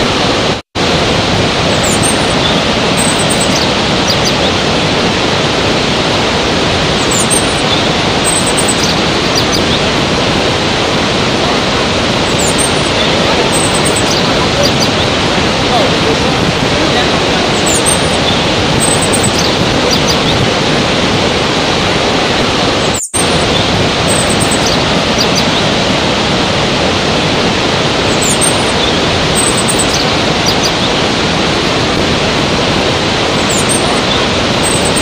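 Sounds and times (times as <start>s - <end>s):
waterfall and rapids rushing: 0.0s - 35.0s
faint high chirps: 1.7s - 4.5s, 7.0s - 9.8s, 12.2s - 15.1s, 17.5s - 20.4s, 22.8s - 25.6s, 28.1s - 31.0s, 33.4s - 35.0s.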